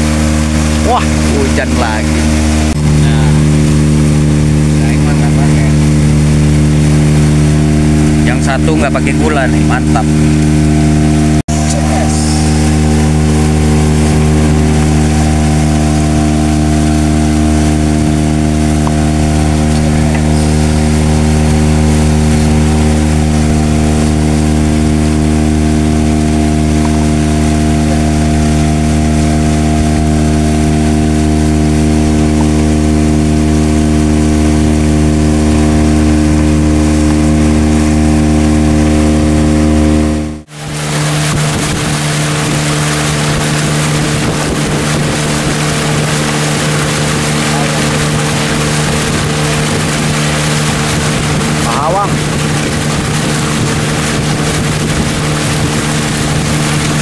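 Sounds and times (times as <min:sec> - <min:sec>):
boat engine running: 0:00.0 - 0:57.0.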